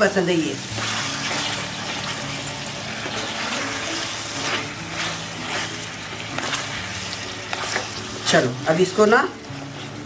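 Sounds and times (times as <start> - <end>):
curry sizzling and bubbling in pot: 0.0 - 10.0
spatula scraping pot: 0.7 - 8.5.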